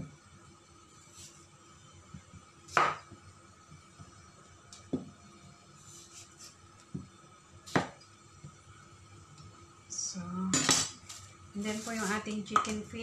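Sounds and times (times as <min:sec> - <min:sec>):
knife chopping on wooden board: 0:07.7 - 0:08.0.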